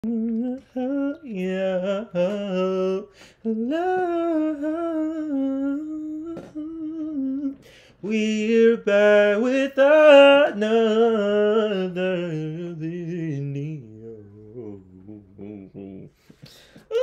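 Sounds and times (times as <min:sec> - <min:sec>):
man humming: 0:00.0 - 0:07.6, 0:11.2 - 0:16.2, 0:16.8 - 0:17.0.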